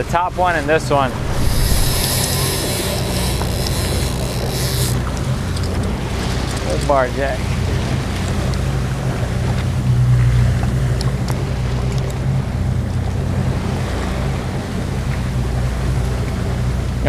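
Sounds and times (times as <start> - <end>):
boat engine running: 0.0 - 17.0
wind on microphone: 0.6 - 6.2
wake churning: 1.0 - 6.7.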